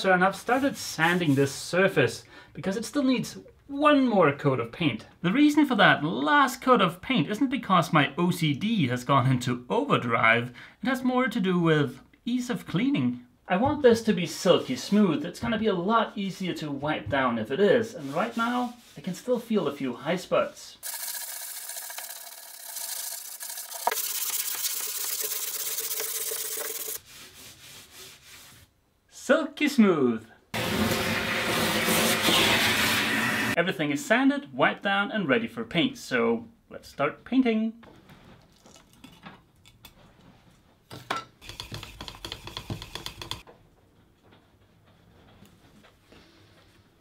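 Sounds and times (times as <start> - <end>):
hand sanding painted surface: 18.0 - 19.1, 22.0 - 28.7
stick stirring paint in metal tin: 20.8 - 27.0, 41.4 - 43.5.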